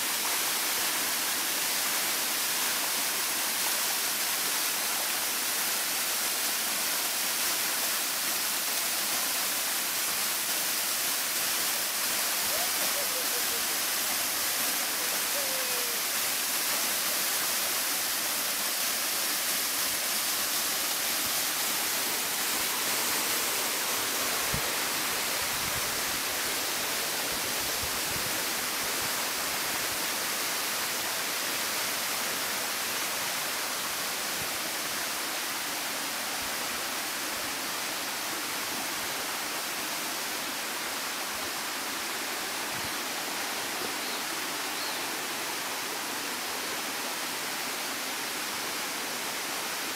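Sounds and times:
water rushing over rocks: 0.0s - 49.9s.

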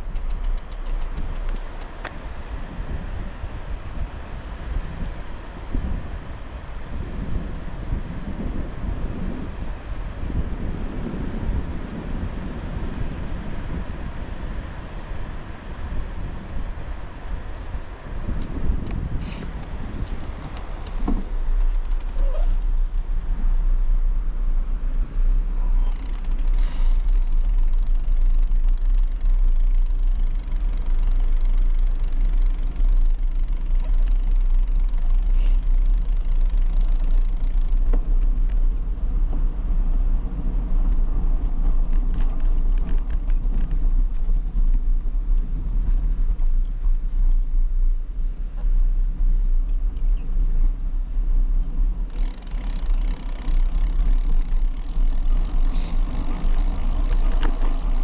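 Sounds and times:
faint clicks: 0.0s - 2.2s
wind buffeting microphone: 0.0s - 58.0s.

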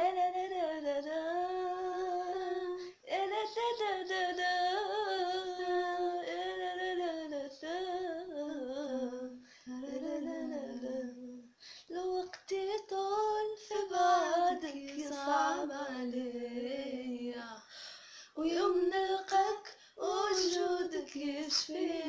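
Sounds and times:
singer breathing: 9.4s - 9.7s, 11.5s - 11.9s, 17.6s - 18.4s.

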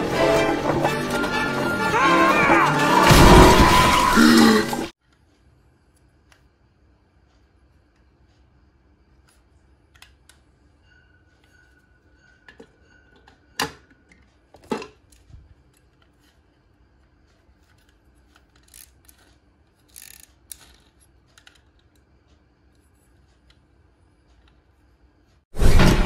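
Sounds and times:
plastic toy car clicks: 17.7s - 22.0s.

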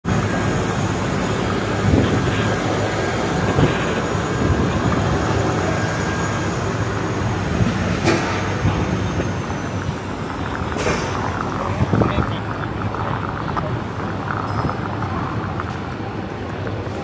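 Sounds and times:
low rumble of city vehicles: 0.0s - 17.0s.

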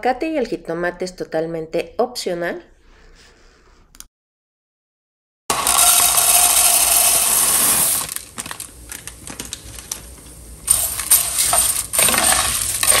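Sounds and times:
metal spoon stirring dry pasta: 5.5s - 8.2s, 10.7s - 13.0s
dry pasta pouring into pot: 5.5s - 10.1s, 10.7s - 13.0s.

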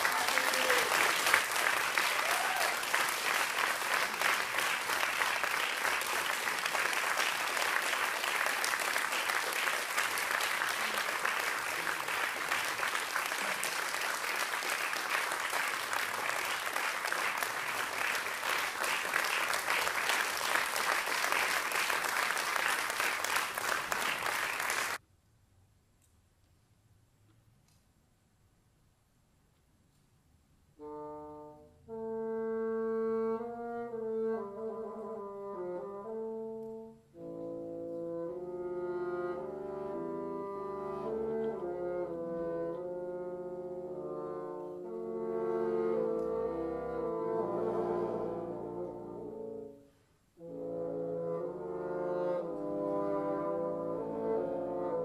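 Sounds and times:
audience applauding: 0.0s - 25.0s.

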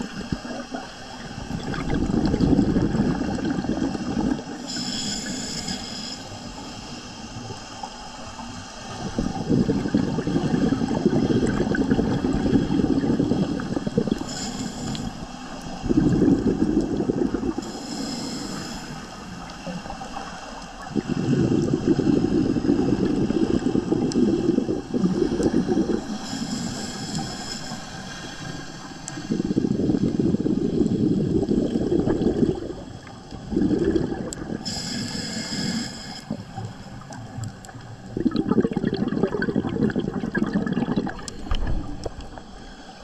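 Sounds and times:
bubbly gurgles of exhaled air: 0.0s - 6.7s, 7.3s - 27.4s, 29.1s - 43.0s
hissing regulator inhales: 2.6s - 10.0s, 12.4s - 36.8s.

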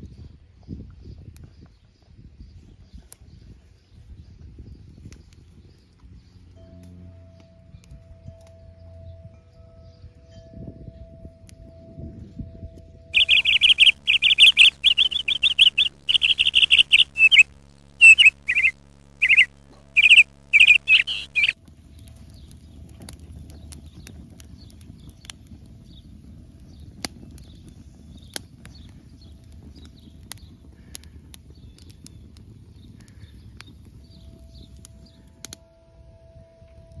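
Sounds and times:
songbird trilling: 13.2s - 21.6s.

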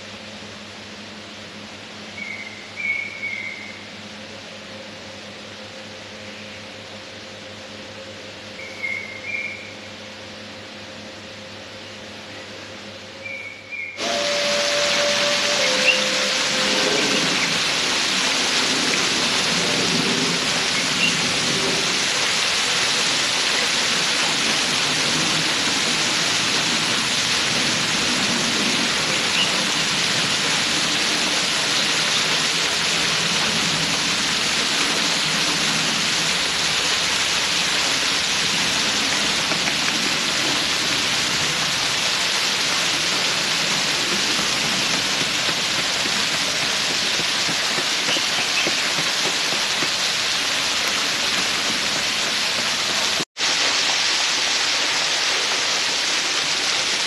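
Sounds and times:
falling water rushing: 14.0s - 57.0s.

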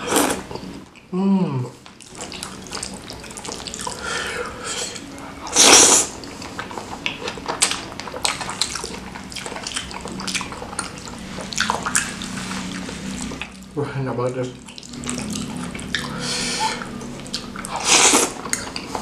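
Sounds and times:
slurping noodles: 0.0s - 0.6s, 2.0s - 7.4s, 14.7s - 19.0s
wet chewing: 1.9s - 13.6s, 14.5s - 19.0s.

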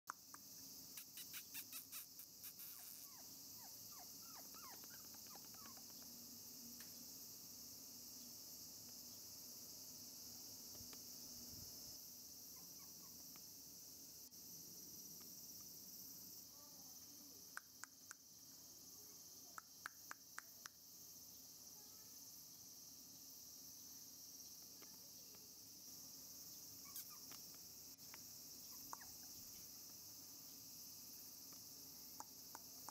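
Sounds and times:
insects chirring: 0.1s - 32.9s
puppy sharp chirps: 1.0s - 5.9s, 26.8s - 27.4s
puppy whimpering: 2.8s - 5.9s
faint ticks: 6.8s - 7.0s, 10.7s - 11.1s, 17.5s - 18.2s, 26.8s - 30.0s, 31.5s - 32.9s.

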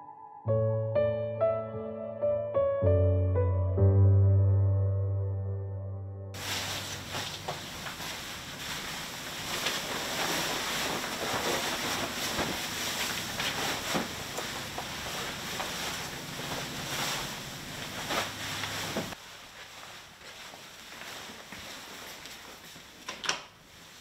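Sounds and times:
bedding rustling and swishing: 6.4s - 23.0s, 23.6s - 24.0s.

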